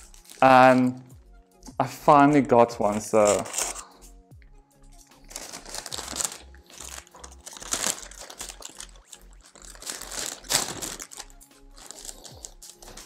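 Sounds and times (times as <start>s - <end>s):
plastic packaging crinkling: 0.0s - 0.8s, 3.2s - 3.8s, 5.3s - 13.0s
background music with beat: 0.0s - 13.0s.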